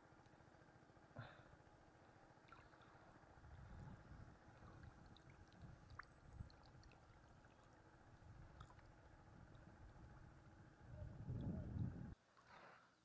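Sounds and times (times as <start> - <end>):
faint water lapping: 0.1 - 13.0
small ticks: 4.6 - 7.8.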